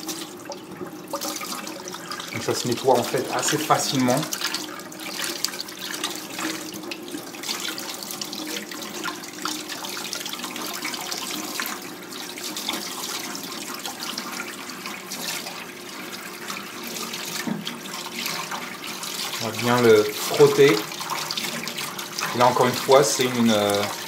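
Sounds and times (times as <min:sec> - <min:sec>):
water splashing: 0:00.0 - 0:24.0
tap running into sink: 0:16.9 - 0:17.8.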